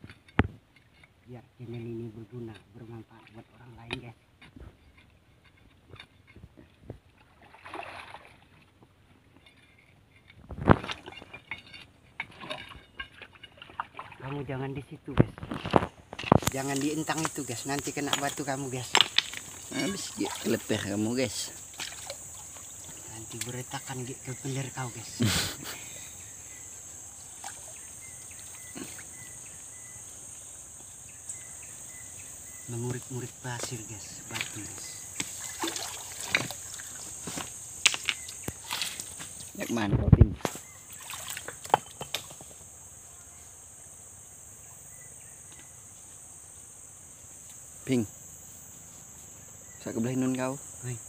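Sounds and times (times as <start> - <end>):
insects droning: 0.0 - 51.0
water sloshing: 7.0 - 14.6, 15.4 - 25.2, 27.2 - 29.5, 34.3 - 39.6, 40.4 - 42.6.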